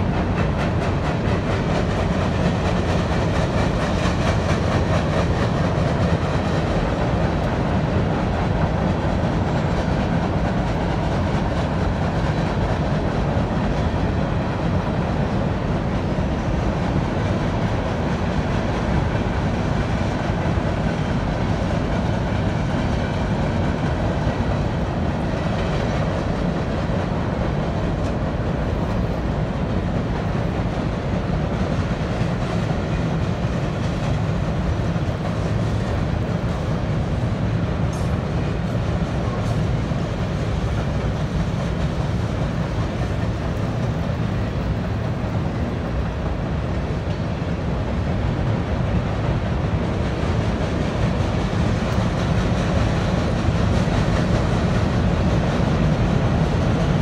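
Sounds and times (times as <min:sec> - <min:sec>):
train wheels clattering on rails: 0:00.0 - 0:57.0.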